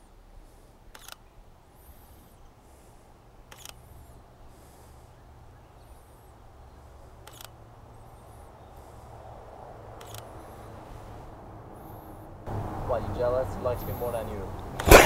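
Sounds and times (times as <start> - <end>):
camera shutter clicks: 0.9 - 1.3, 3.5 - 3.8, 7.2 - 7.6, 10.0 - 10.3.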